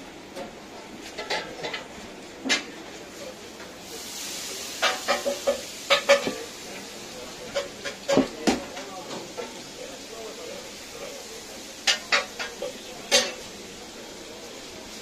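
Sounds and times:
liquid hissing on hot pan: 3.1 - 15.0
meat sizzling: 3.1 - 15.0
metal utensils clinking on pan: 4.8 - 6.4, 11.8 - 13.5.

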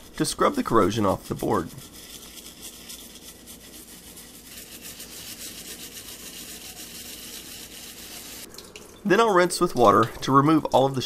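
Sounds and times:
brush scrubbing circuit board: 0.0 - 8.5.

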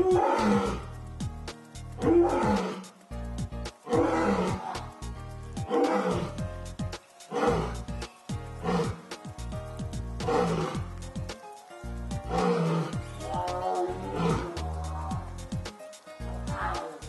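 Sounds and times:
lioness roaring: 0.0 - 0.9, 2.0 - 3.0, 3.8 - 4.9, 5.7 - 6.4, 7.3 - 7.8, 8.6 - 9.1, 10.2 - 10.9, 12.3 - 15.3.

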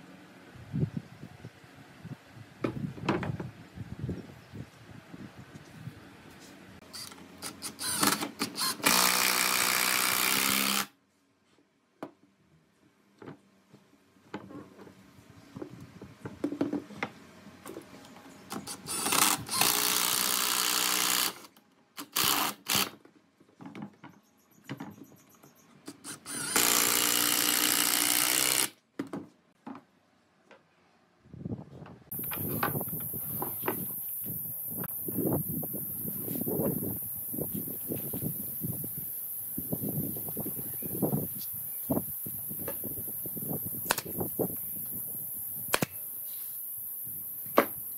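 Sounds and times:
impact driver driving screws: 7.0 - 10.9, 25.9 - 28.7
wooden knocks and clatter: 15.6 - 17.9, 23.4 - 25.6.

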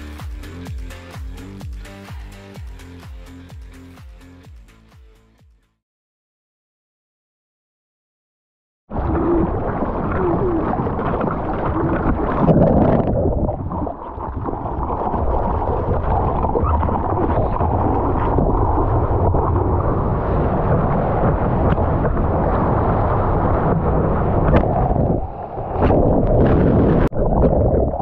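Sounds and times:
water rushing and splashing: 9.0 - 28.0.

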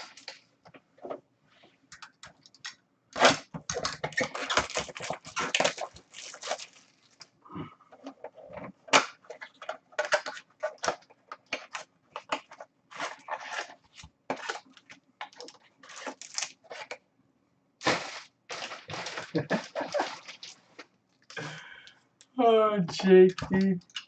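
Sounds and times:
cardboard box and packs rustling: 3.2 - 7.2, 9.4 - 17.0, 17.8 - 20.7.

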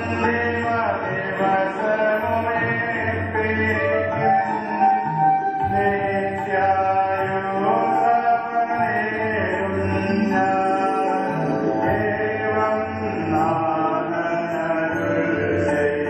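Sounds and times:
voices chanting a hymn: 5.7 - 16.0.

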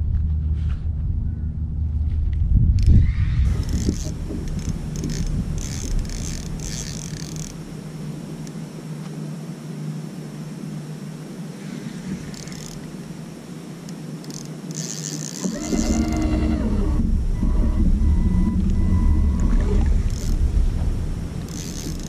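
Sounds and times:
faint low hum: 0.0 - 22.0
wind: 0.0 - 22.0
fishing reel cranking: 2.8 - 7.6, 12.3 - 12.9, 14.2 - 20.4, 21.5 - 22.0
water noise: 2.8 - 22.0.

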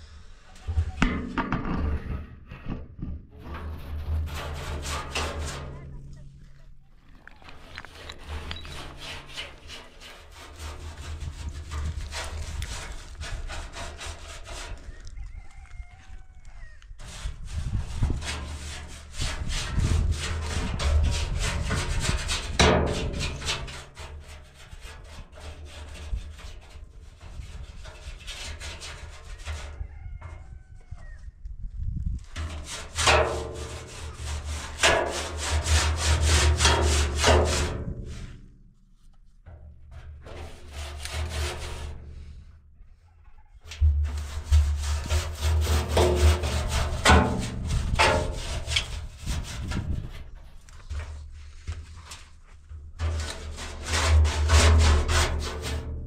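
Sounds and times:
paintbrush scrubbing steel drum: 3.4 - 6.4, 7.6 - 14.8, 17.0 - 29.7, 32.4 - 42.5, 43.7 - 55.9
rooster crowing faintly: 14.8 - 17.0, 29.3 - 31.4, 42.8 - 44.7.

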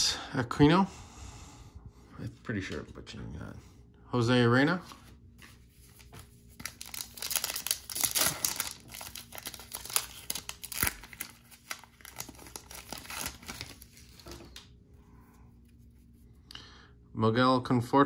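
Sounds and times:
card pack wrapper tearing and crinkling: 5.9 - 14.6.

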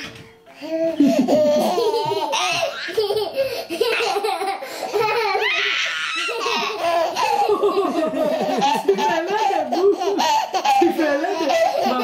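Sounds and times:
baby laughing: 0.6 - 12.0
baby squealing: 5.2 - 7.5.

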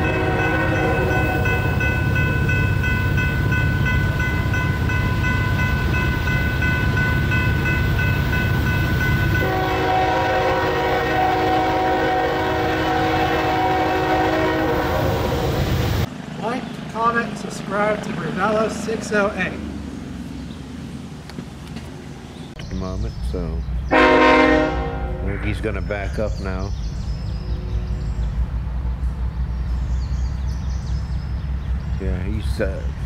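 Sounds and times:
train horn: 0.0 - 2.3, 9.2 - 15.8, 23.9 - 25.5
diesel locomotives rumbling: 0.0 - 33.0.

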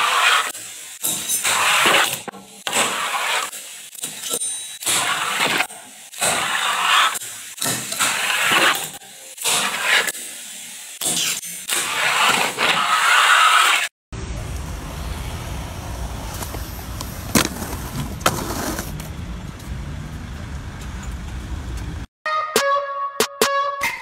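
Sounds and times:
hissing scrape: 0.0 - 13.9
skateboard rolling on paving: 2.7 - 3.5, 11.8 - 13.9, 14.6 - 22.0
street traffic noise: 14.1 - 22.1
skateboard clacks: 15.9 - 19.2.

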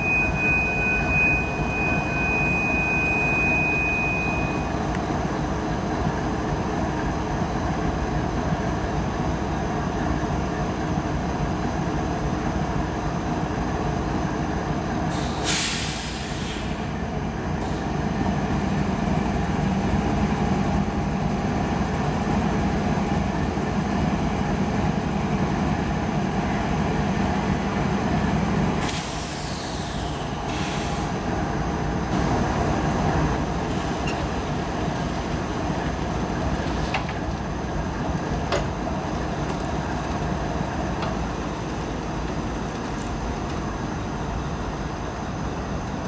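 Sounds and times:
diesel locomotives idling: 0.0 - 46.0
sharp air hisses: 15.1 - 16.9, 28.8 - 31.2.

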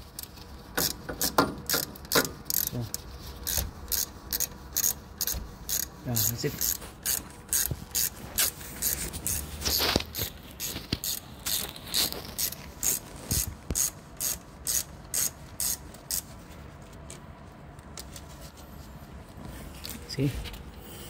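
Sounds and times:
ratchet wrench clicking: 0.0 - 16.3.

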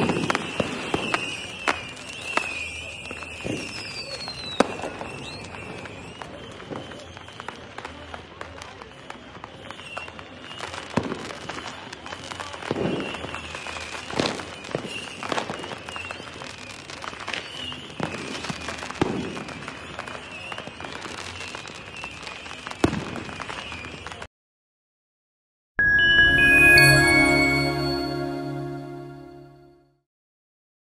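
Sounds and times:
fireworks booms and cracks: 0.0 - 24.3
fireworks crackle: 0.0 - 24.3.

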